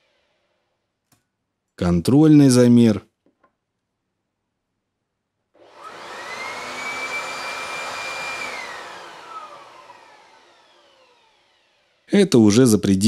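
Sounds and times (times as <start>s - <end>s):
electric leaf blower whine: 0.0s - 0.6s, 5.6s - 12.1s.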